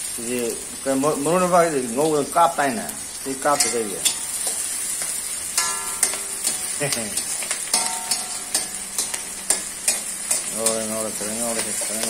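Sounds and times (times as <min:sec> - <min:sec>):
greens sizzling in hot oil: 0:00.0 - 0:12.0
metal spoon scraping pan: 0:03.5 - 0:12.0.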